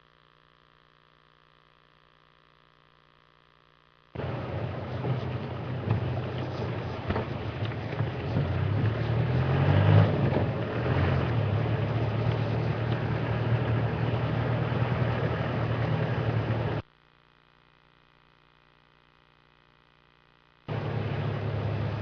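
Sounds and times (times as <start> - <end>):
faint hum: 0.0 - 22.0
road and wind noise: 4.2 - 16.8, 20.7 - 22.0
vehicle engine running: 4.2 - 16.8, 20.7 - 22.0.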